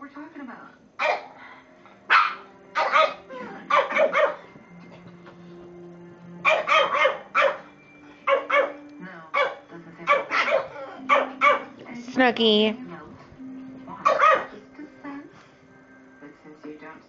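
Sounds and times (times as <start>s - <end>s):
small dog barking: 1.0s - 1.4s, 2.1s - 4.5s, 6.4s - 11.8s, 14.0s - 14.6s.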